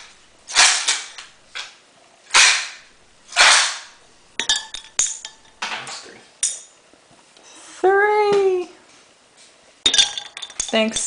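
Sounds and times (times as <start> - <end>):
ice clinking against glass: 4.4 - 5.6, 9.9 - 11.0.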